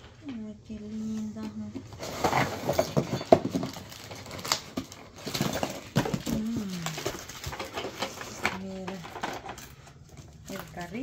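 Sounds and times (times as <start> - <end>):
rummaging in cardboard box: 1.2 - 11.0.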